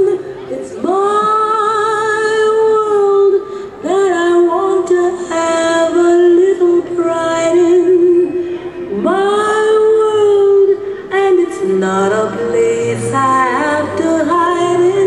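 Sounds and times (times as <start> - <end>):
person singing long notes: 0.0 - 15.0.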